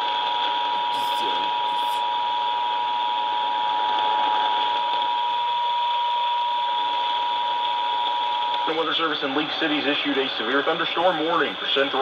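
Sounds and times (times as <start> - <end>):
radio static hiss: 1.0 - 2.0.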